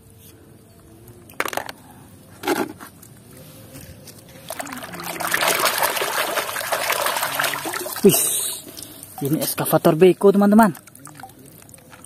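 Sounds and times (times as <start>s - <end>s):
hand splashing in muddy water: 4.5s - 9.3s.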